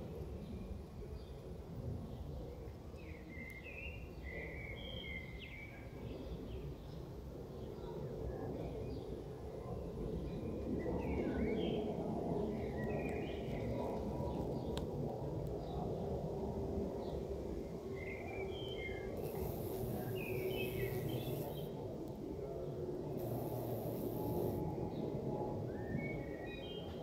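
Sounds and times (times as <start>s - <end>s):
steady low outdoor noise: 0.0s - 27.0s
songbird chirping: 18.6s - 21.7s.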